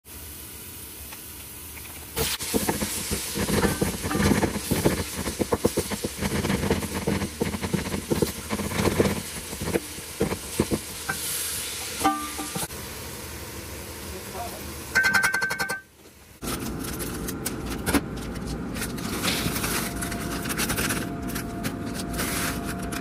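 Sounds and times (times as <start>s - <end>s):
meat and onions sizzling: 0.1s - 15.2s.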